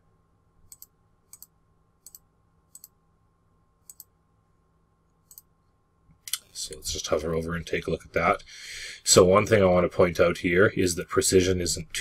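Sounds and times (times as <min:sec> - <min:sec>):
computer mouse clicks: 0:00.7 - 0:03.0, 0:03.8 - 0:04.1, 0:05.2 - 0:05.5.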